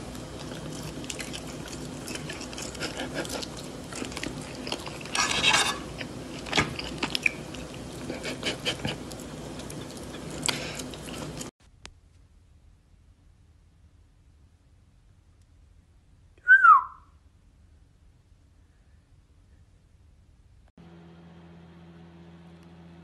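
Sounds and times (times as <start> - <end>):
chewing and crunching food: 0.0 - 11.5
steady low hum: 0.0 - 16.4
fork clicking and scraping plate: 1.0 - 7.4.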